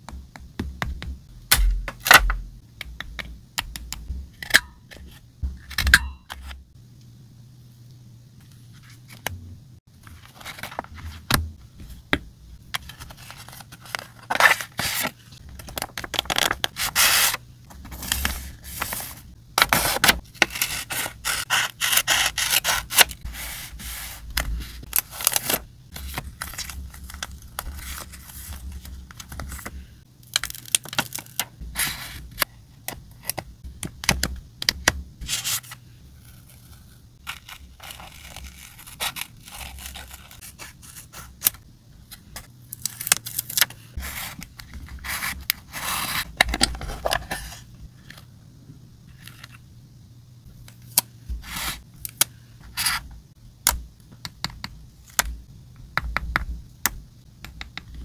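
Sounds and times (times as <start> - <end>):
paper rustling and crinkling: 10.0 - 12.0, 12.8 - 21.5
scissors cutting paper: 19.7 - 23.2.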